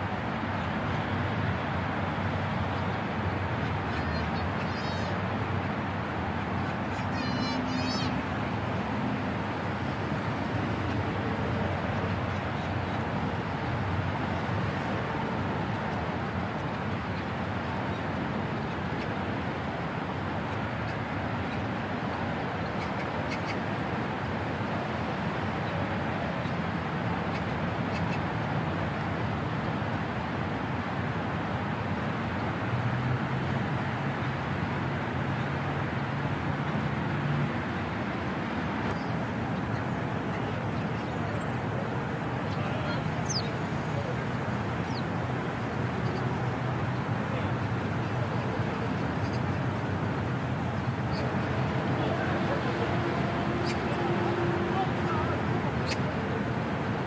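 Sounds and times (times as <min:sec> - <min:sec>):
heavy machinery diesel engines: 0:35.7 - 0:57.0.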